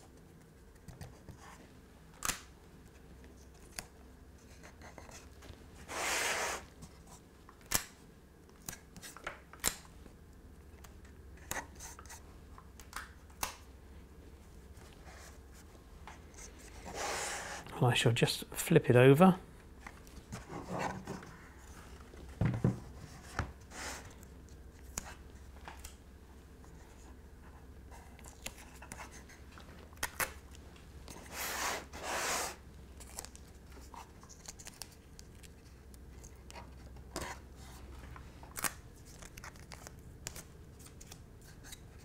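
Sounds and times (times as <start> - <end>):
cabinet set down knock: 22.4 - 22.8.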